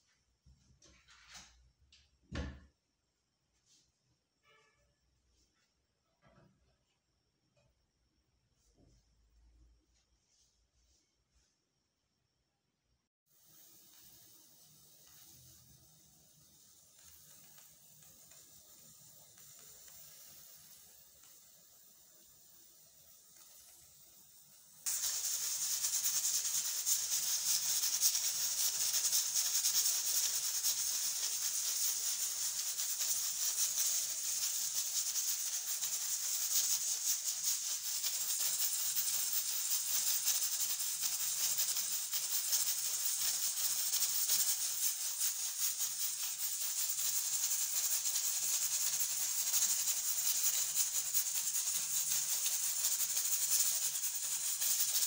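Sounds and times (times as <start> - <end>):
steam hissing from pressure cooker: 13.3 - 55.0.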